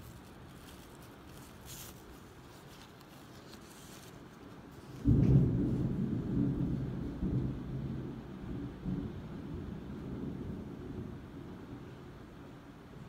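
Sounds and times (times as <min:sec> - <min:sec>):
rustling of gift bag: 0:00.0 - 0:05.2
thunder rumbling: 0:04.8 - 0:11.8.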